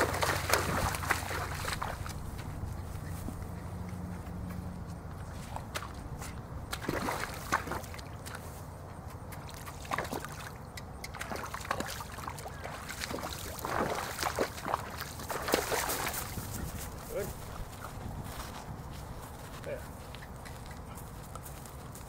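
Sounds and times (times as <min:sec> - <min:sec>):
hooves splashing in water: 0:00.0 - 0:22.0.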